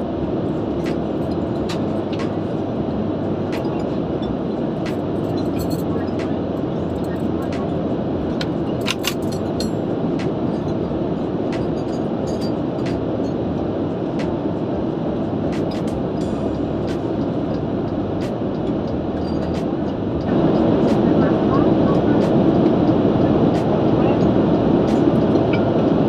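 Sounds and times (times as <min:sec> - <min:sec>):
airplane cabin rumble: 0:00.0 - 0:26.0
cutlery and dishes clinking: 0:08.8 - 0:09.6.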